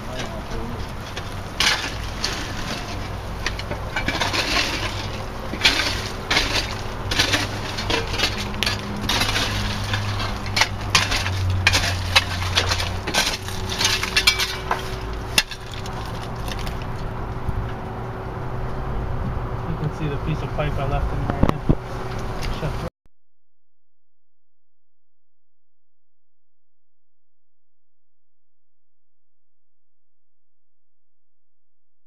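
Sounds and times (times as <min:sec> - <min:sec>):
shoveling crushed stone: 0:01.6 - 0:03.2, 0:04.0 - 0:16.9.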